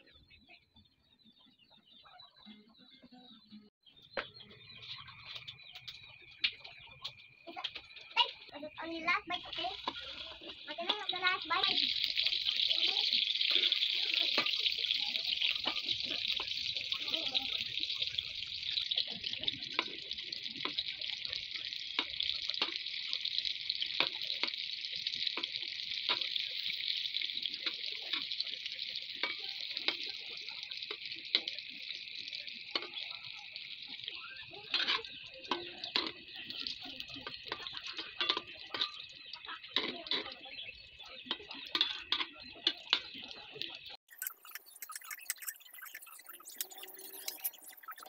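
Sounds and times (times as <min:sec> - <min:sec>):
hotdogs sizzling in hot oil: 0:04.3 - 0:48.0
metal spatula scraping pan: 0:34.7 - 0:36.1.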